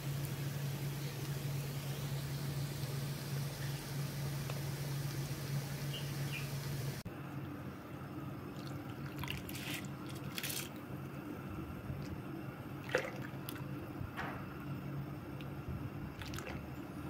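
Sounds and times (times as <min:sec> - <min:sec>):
water splashing into pot: 0:08.5 - 0:10.8, 0:12.8 - 0:13.7, 0:15.4 - 0:16.7.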